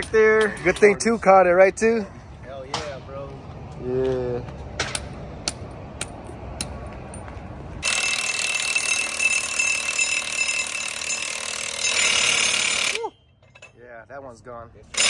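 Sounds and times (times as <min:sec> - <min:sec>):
impact wrench hammering: 0:04.8 - 0:07.2, 0:07.8 - 0:13.7.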